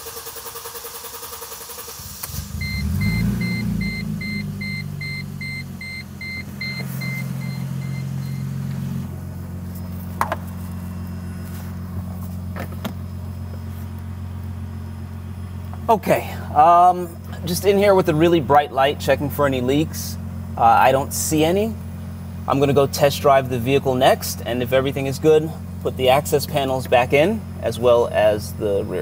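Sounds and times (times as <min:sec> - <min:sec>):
car engine starting and idling: 0:00.0 - 0:29.0
dashboard warning chime beeping: 0:02.5 - 0:08.7.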